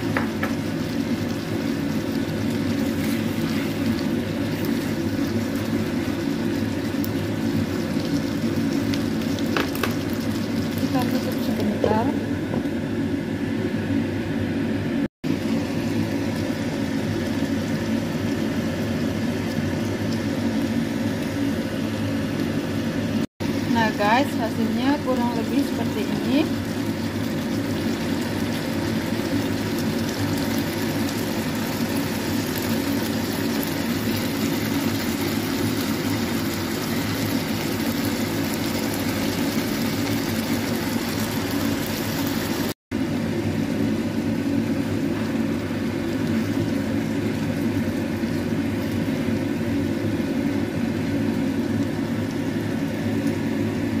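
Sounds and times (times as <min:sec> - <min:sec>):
fan whirring: 0:00.0 - 0:54.0.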